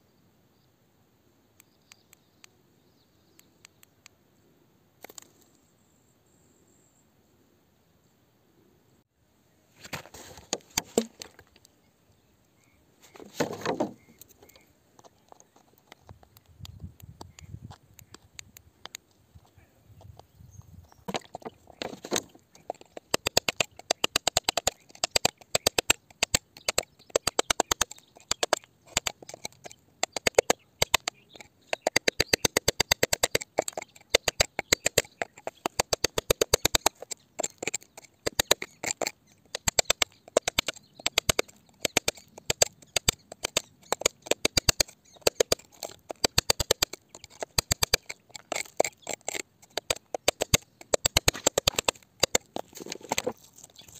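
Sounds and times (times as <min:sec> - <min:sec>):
hand tools scraping rock: 0:21.0 - 0:53.9
loose grit rattling: 0:21.0 - 0:53.9.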